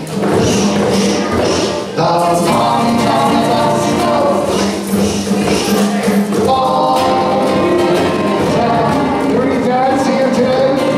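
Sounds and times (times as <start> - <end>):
shaker rattling: 0.0 - 9.7
hand drum beating: 0.0 - 10.9
group singing: 0.2 - 10.9.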